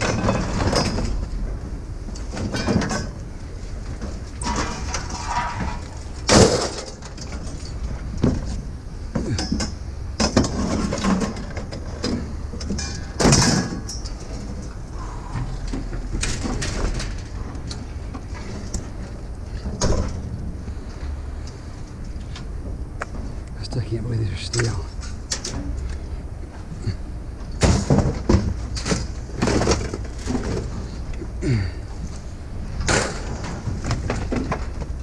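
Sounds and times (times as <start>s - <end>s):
scrap metal clanking on ground: 0.0s - 1.3s, 2.1s - 3.2s, 3.9s - 20.3s, 26.8s - 31.0s, 32.8s - 34.9s
scrap metal scraping on wooden boards: 4.4s - 7.6s.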